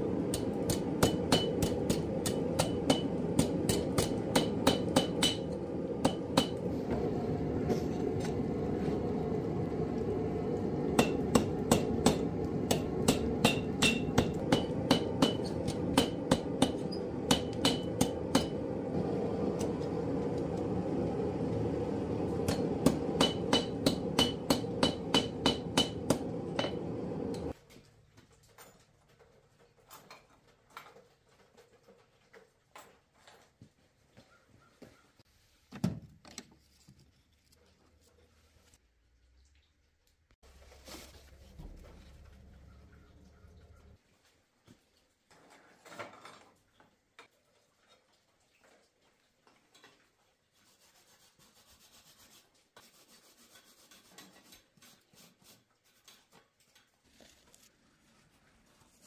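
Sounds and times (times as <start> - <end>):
hammer striking steel on anvil: 0.2 - 6.7, 10.9 - 18.8, 22.4 - 27.5.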